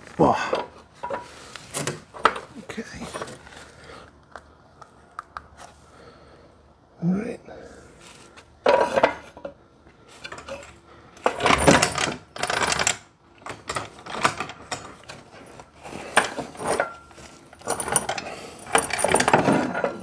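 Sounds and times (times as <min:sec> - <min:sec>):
metal equipment clanking: 0:11.2 - 0:20.0.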